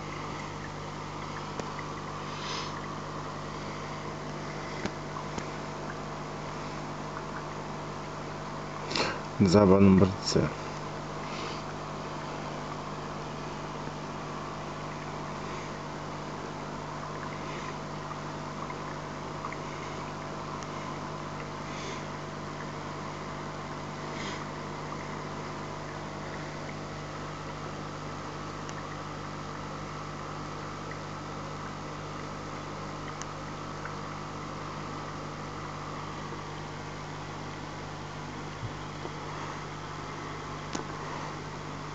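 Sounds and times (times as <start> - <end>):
water and bubbles hissing: 0.0 - 9.4, 10.6 - 41.9
aquarium motor hum: 0.0 - 41.9
faint ticks: 4.2 - 6.0, 28.6 - 29.0.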